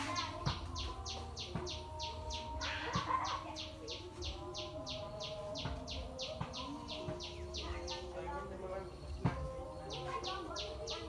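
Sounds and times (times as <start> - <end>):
chick peeping: 0.0 - 8.4.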